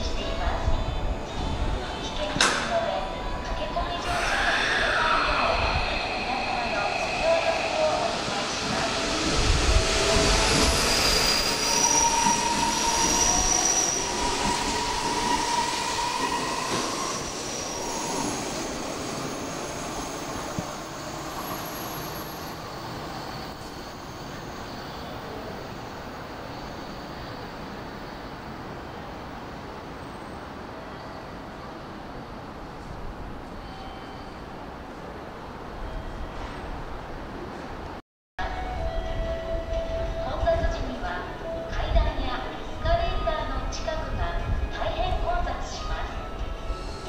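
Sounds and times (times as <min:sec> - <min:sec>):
train wheels squealing: 0:04.0 - 0:28.4, 0:33.6 - 0:34.6, 0:45.7 - 0:47.0.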